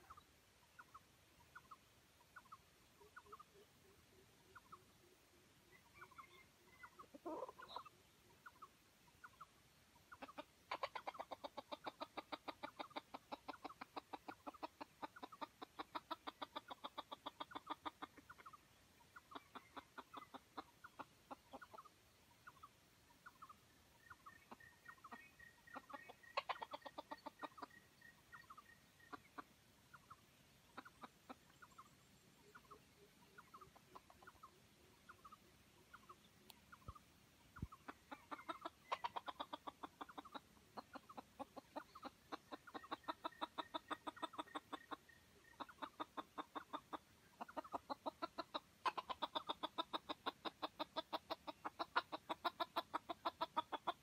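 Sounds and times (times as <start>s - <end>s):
junglefowl clucking: 0.0s - 54.0s.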